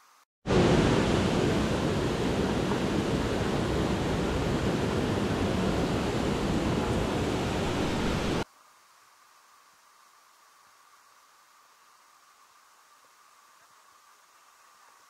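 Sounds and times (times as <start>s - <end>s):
waterfall rushing: 0.5s - 8.4s.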